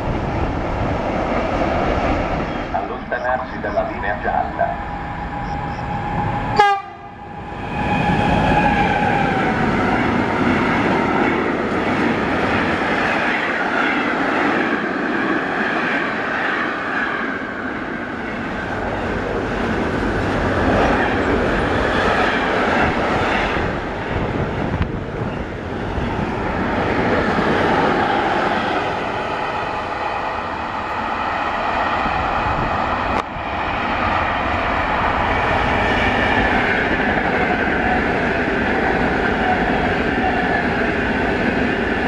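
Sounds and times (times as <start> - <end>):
freight train wheel and rail noise: 0.0 - 42.0
locomotive horn: 6.6 - 7.1.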